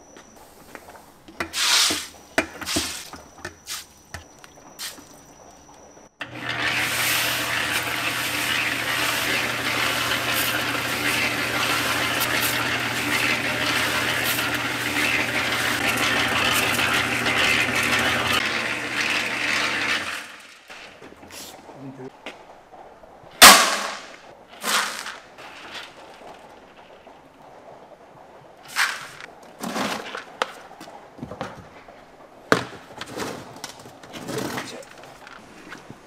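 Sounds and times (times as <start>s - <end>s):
pellets tumbling in drum: 0.9s - 5.4s, 6.2s - 21.9s, 23.4s - 27.2s, 28.6s - 31.6s
drum mixer motor humming: 6.2s - 20.0s
handling knocks and clatters: 28.6s - 36.0s.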